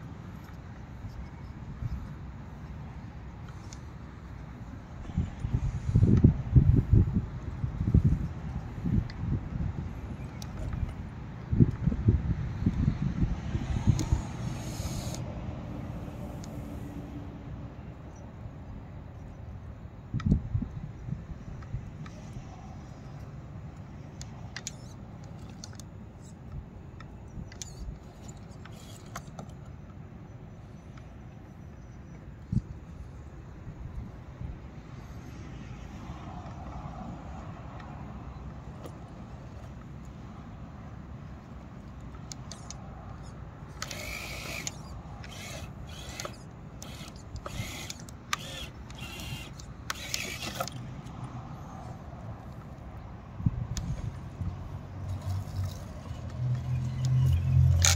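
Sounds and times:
rc car motor whining: 13.8s - 15.2s, 27.6s - 29.4s, 42.5s - 50.8s
sharp clicks: 41.9s - 51.4s, 55.6s - 57.9s.

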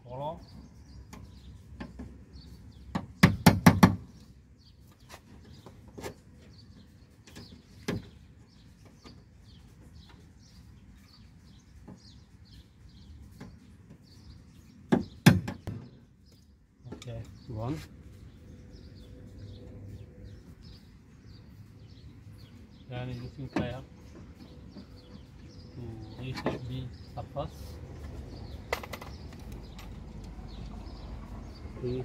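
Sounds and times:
faint birds chirping: 0.0s - 32.0s
screwdriver knocking on metal rivets: 28.6s - 30.3s.

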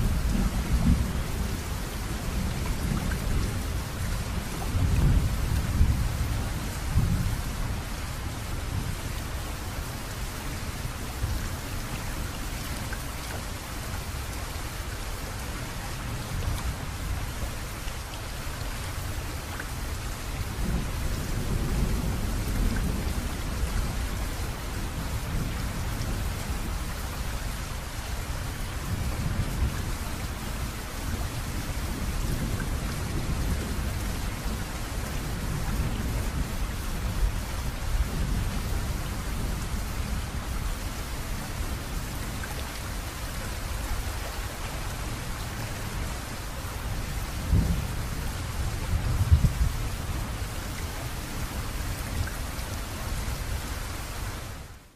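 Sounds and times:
steady rain: 0.0s - 54.9s
low thunder rumbling: 46.8s - 50.8s.

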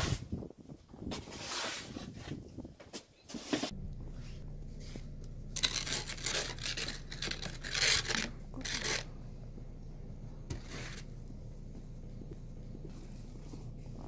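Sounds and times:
steady low hum: 3.7s - 14.0s
footsteps crunching in snow: 10.5s - 14.0s.

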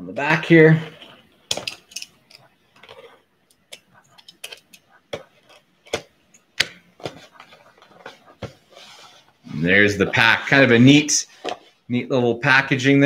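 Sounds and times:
clicks and taps: 1.5s - 8.6s.

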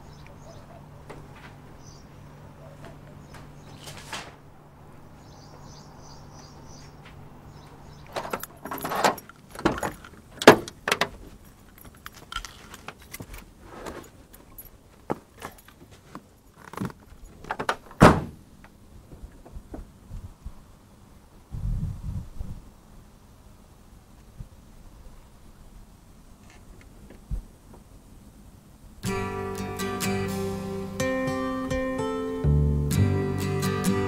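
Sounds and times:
keys jangling: 8.2s - 10.2s
car door shutting: 18.0s - 18.4s.

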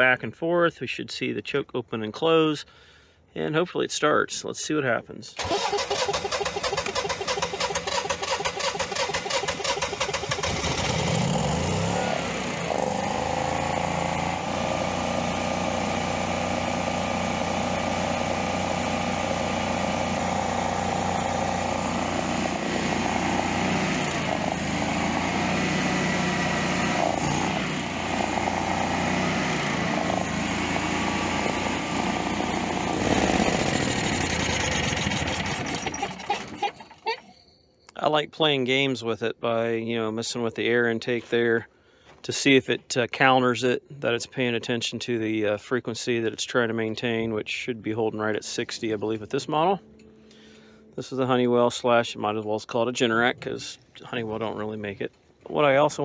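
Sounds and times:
generator engine running: 5.4s - 37.0s
generator engine cranking: 5.4s - 37.3s.

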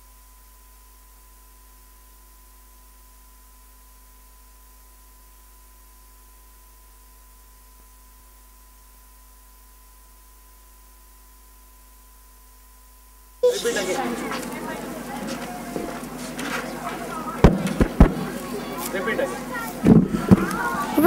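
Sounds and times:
electrical hum and hiss: 0.0s - 21.0s.

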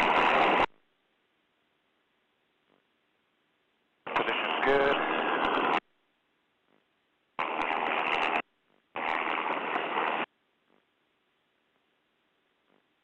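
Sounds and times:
helicopter cabin rushing hiss: 4.1s - 5.8s.

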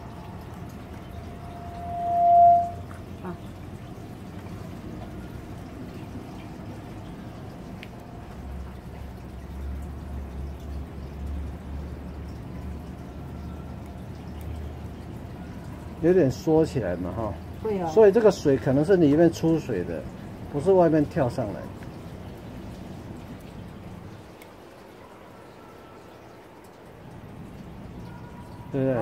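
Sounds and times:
steady tone: 1.0s - 3.4s.

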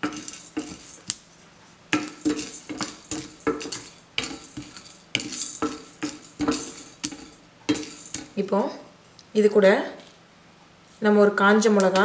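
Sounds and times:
spatula scraping lentils in pan: 0.0s - 8.4s.

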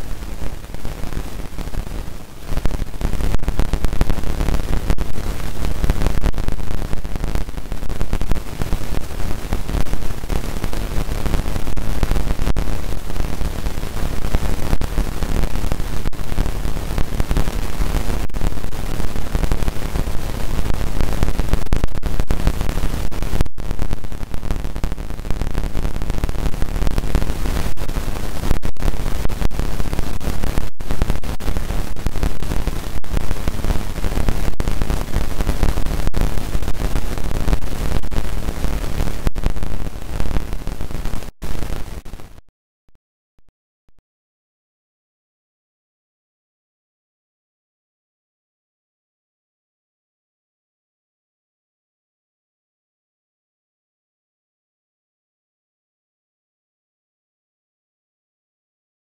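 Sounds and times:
static-like hiss: 0.0s - 42.5s.

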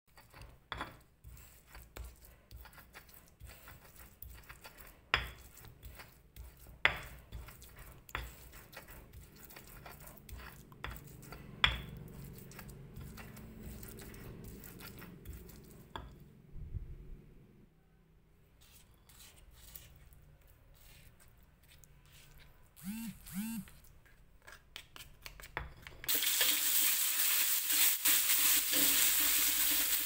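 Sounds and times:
stone pestle grinding in mortar: 0.1s - 16.2s.

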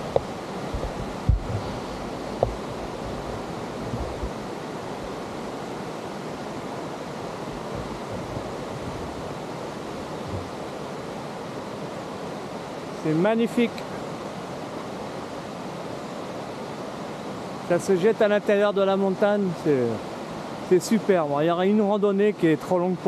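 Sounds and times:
wind thumps on microphone: 0.0s - 5.2s, 7.5s - 9.4s, 10.1s - 10.6s
stream rushing over rocks: 0.0s - 23.0s.

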